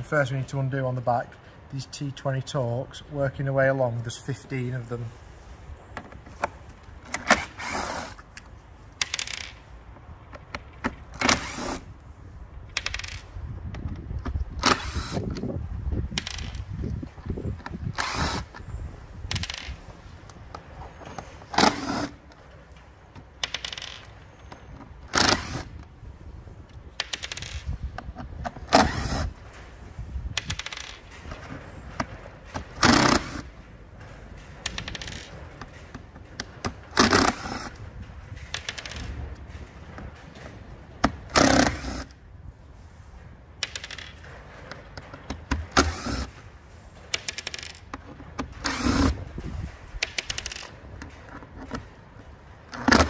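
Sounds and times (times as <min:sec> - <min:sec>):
cordless drill whirring: 0:18.0 - 0:18.6.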